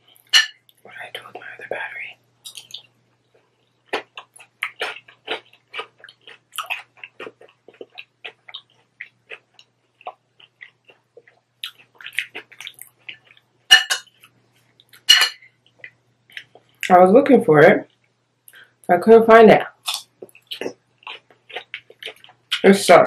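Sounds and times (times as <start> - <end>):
metal fork striking glass bowl: 0.3 - 0.6, 13.7 - 14.1, 15.1 - 15.4
person chewing crunchy food: 2.5 - 16.9, 19.8 - 22.6.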